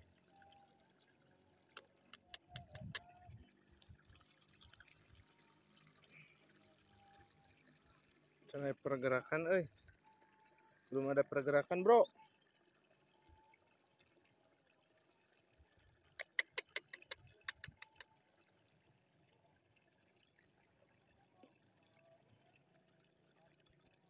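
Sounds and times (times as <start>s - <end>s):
sharp clicks: 16.2s - 18.1s.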